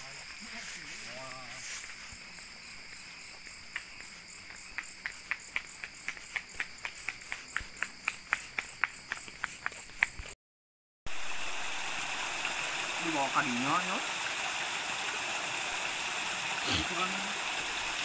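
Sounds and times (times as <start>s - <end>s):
crickets and insects chorus: 0.0s - 10.4s, 11.1s - 18.0s
water rushing in ditch: 11.1s - 18.0s.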